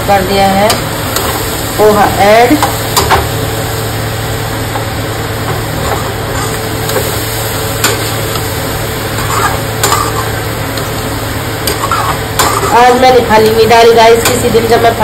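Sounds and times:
food sizzling in pan: 0.0 - 15.0
metal spatula stirring: 9.2 - 10.9, 11.6 - 13.0.

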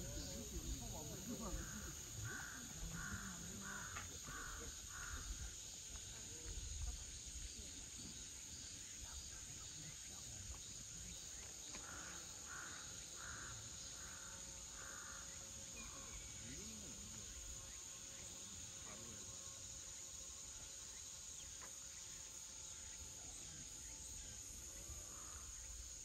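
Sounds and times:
high insect whine: 0.0 - 26.0
crow cawing: 1.6 - 5.3, 11.8 - 15.3.

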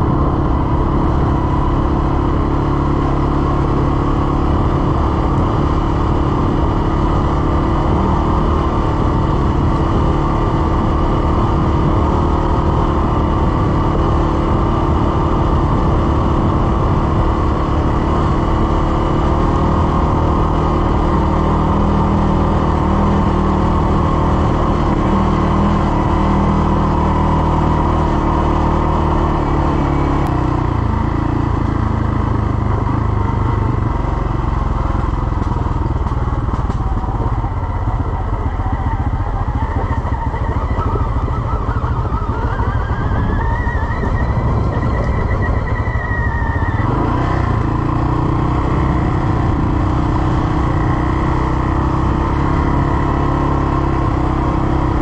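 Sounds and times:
atv engine running: 0.0 - 55.0.

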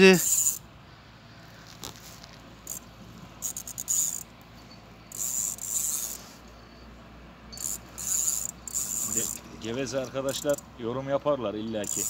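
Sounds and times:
fishing reel whirring: 0.1 - 0.6, 2.6 - 4.3, 5.1 - 6.5, 7.5 - 9.5, 10.3 - 10.6.

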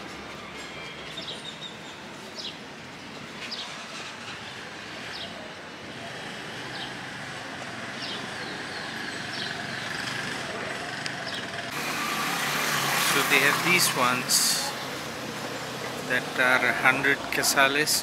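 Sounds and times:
town street noise: 0.0 - 18.0.

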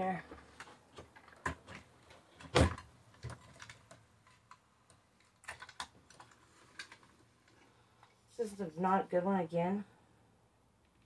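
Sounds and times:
hands handling plastic light fixture: 0.3 - 8.2.

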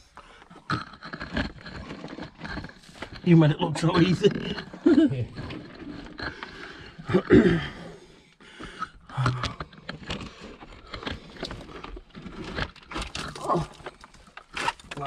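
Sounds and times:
rubble knocking and scraping: 0.0 - 15.0
person grunting: 7.0 - 8.0.

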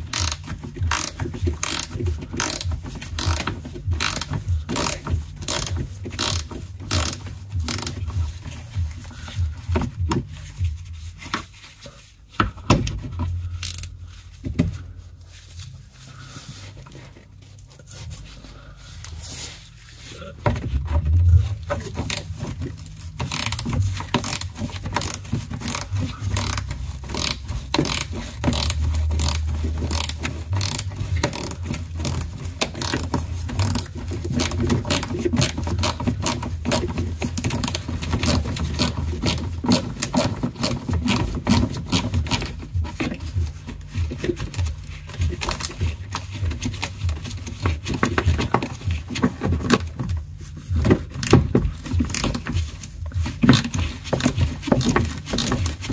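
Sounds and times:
socket ratchet clicking: 0.0 - 8.0, 23.2 - 35.1
tool scraping and knocking on panel: 20.4 - 55.9.

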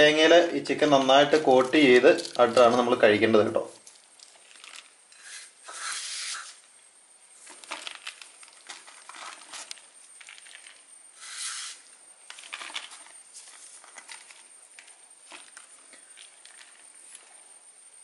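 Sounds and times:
crumbs falling with small ticks: 1.0 - 3.0, 3.7 - 5.2, 7.4 - 10.9, 12.2 - 17.3.

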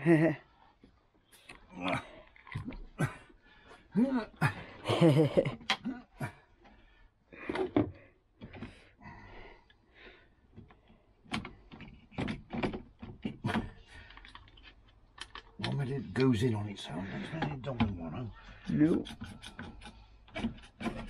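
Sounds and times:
metal knocking and scraping on wood: 10.5 - 16.3, 16.9 - 21.0.

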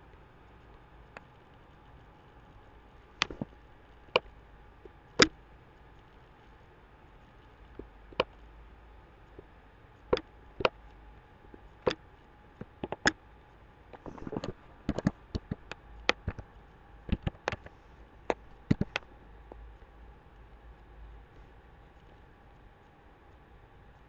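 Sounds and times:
keyboard typing: 3.2 - 3.6, 12.6 - 13.2, 14.0 - 16.5, 17.1 - 19.1
mouse clicks: 3.2 - 3.6, 5.2 - 5.4, 12.6 - 13.2, 13.9 - 16.5, 17.1 - 19.6.

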